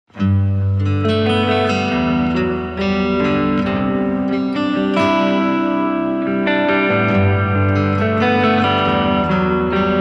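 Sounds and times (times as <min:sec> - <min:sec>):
plucked guitar tune: 0:00.1 - 0:10.0.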